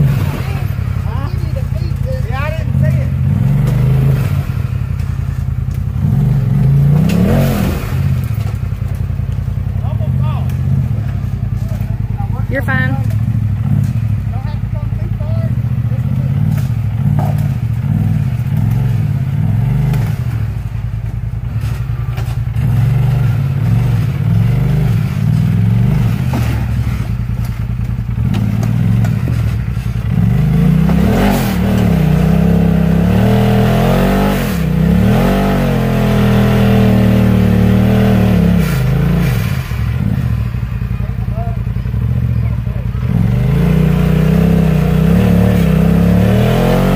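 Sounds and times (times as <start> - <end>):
utility vehicle engine revving: 0.0 - 46.9.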